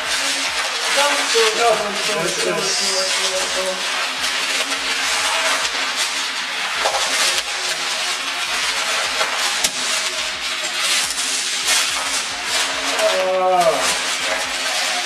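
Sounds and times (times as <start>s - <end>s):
gift wrapping paper crackling: 0.0s - 15.0s.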